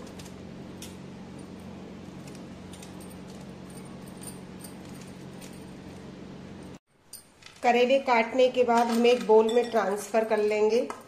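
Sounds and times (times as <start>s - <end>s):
steady low hum: 0.0s - 7.3s.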